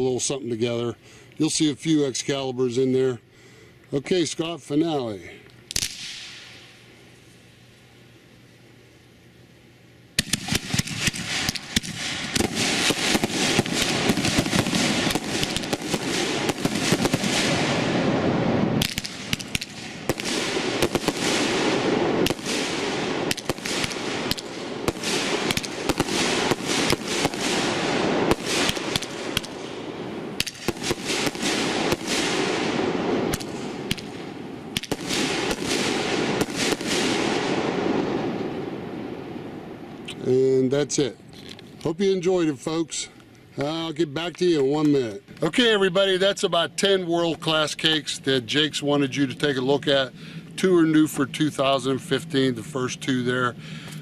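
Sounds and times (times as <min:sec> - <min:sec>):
fireworks bangs and crackling: 0:10.2 - 0:40.6.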